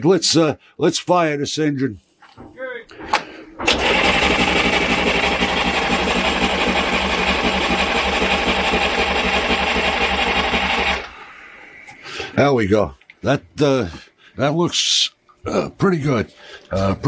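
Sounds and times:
starter cranking diesel engine: 3.6 - 11.1.

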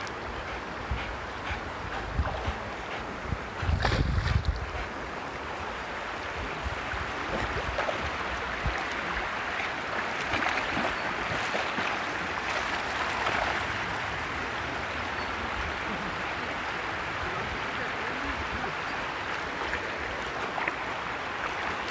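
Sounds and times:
shallow river water running: 0.0 - 21.9
dog splashing through water: 3.7 - 4.6, 9.6 - 13.8.

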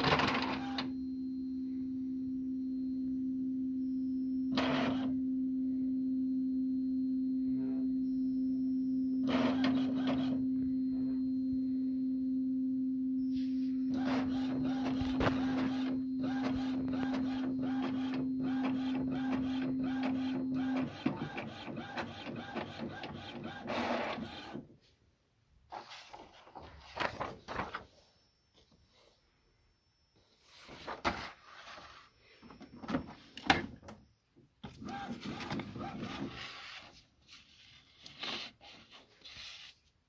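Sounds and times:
printer paper feed whirring: 0.0 - 0.9, 4.6 - 5.1, 9.2 - 10.4, 13.9 - 24.6, 34.7 - 36.8
steady hum: 5.1 - 19.8.

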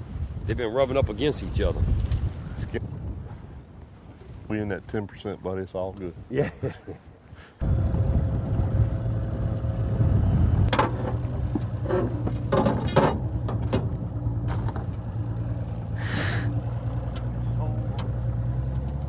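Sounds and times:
boat motor humming: 7.6 - 19.0.

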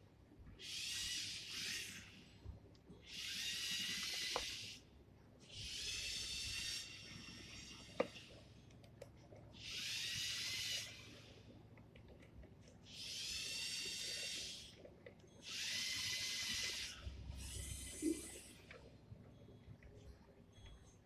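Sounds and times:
electric motors whining: 3.0 - 4.9, 5.5 - 8.5, 9.6 - 11.5, 12.8 - 18.9.

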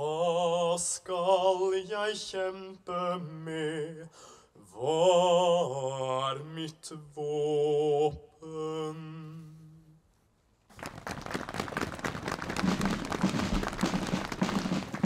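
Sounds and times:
man singing a long note: 4.8 - 10.0
audience clapping: 10.7 - 15.0.

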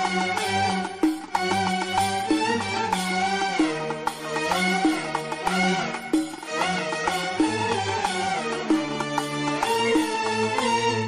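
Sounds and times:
instrumental music with bass line: 0.0 - 11.0.

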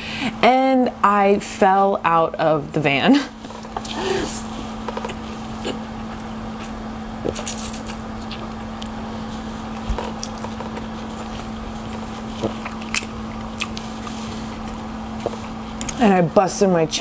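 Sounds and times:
low electrical hum: 0.0 - 17.0
wet mouth clicks: 12.6 - 13.8.

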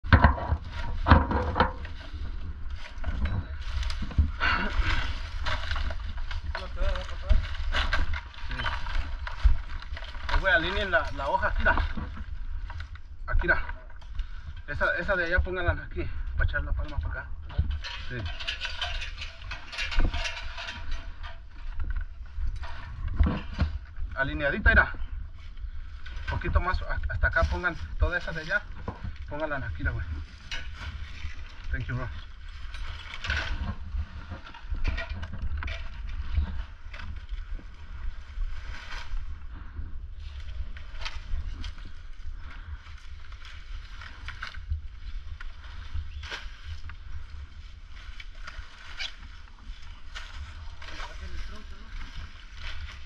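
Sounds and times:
dry palm fronds rustling: 0.0 - 53.0
low microphone rumble: 0.0 - 53.0
clicking and rattling: 17.0 - 24.0.

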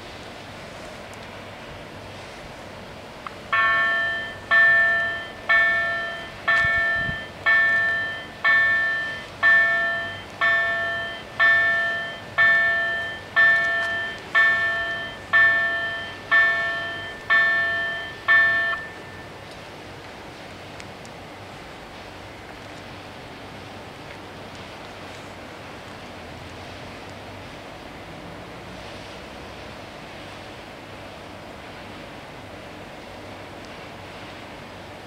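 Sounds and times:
level crossing bell ringing: 3.6 - 19.3.

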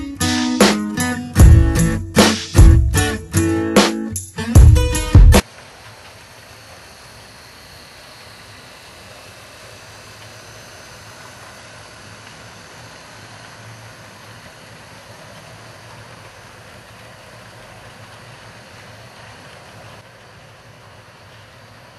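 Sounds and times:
camera hiss: 5.4 - 21.9
model train motor whir: 6.1 - 20.0.

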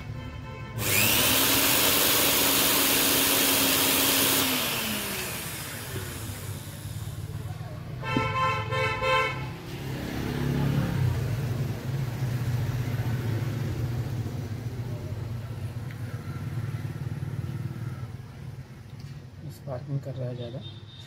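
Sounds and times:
electric motor humming: 0.8 - 7.4.

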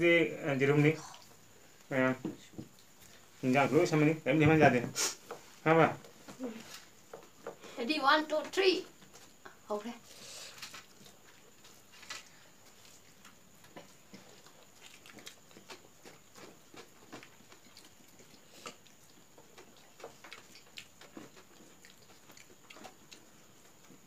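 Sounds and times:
person chewing: 10.5 - 24.0.

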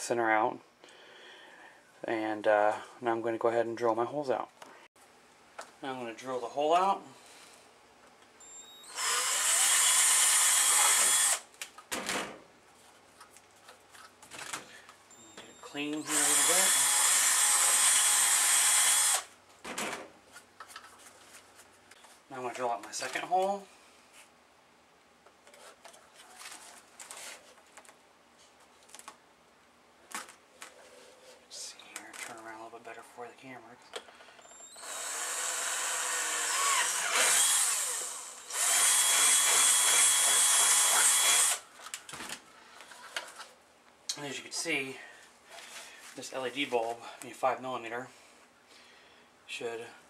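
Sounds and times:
cordless drill boring through plastic: 8.8 - 11.4, 16.0 - 19.3, 34.5 - 41.6.

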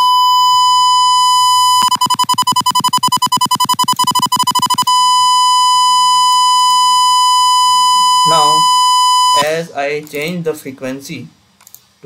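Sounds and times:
sine test tone with choppy pulses: 0.0 - 9.4.

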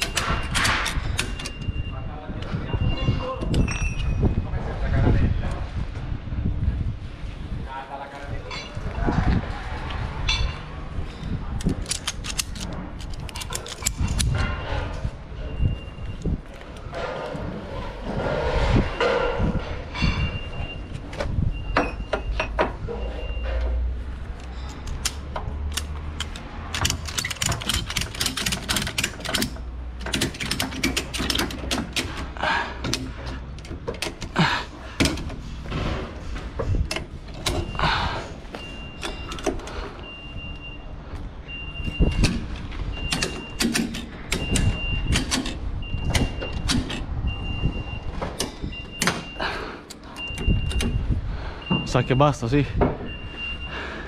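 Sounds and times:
vehicle warning beep: 0.0 - 0.7, 1.3 - 4.2, 14.4 - 17.1, 18.9 - 23.9, 37.5 - 43.7, 44.3 - 54.0
ratchet strap clicking: 24.6 - 34.4.

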